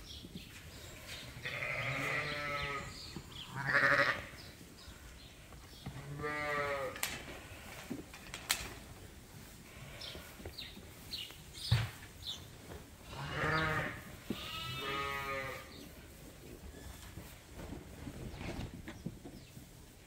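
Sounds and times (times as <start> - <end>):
sheep bleating: 1.4 - 4.3, 6.1 - 7.0, 13.1 - 15.7.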